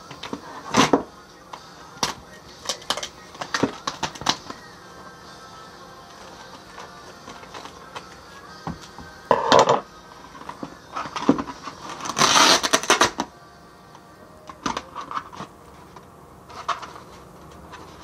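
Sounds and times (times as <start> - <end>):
tape ripping off roll: 10.4 - 13.3.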